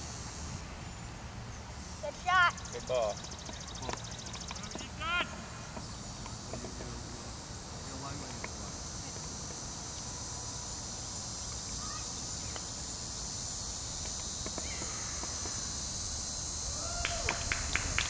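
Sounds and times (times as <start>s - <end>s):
insects buzzing: 0.0s - 18.0s.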